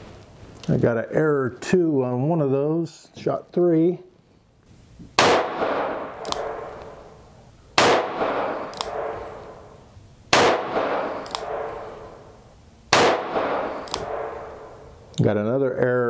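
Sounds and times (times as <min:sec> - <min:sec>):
revolver shots with echo: 0:05.2 - 0:07.2, 0:07.8 - 0:12.3, 0:12.9 - 0:14.9
faint sharp crack: 0:05.3 - 0:07.0, 0:07.8 - 0:09.5, 0:10.4 - 0:11.8, 0:13.0 - 0:14.5.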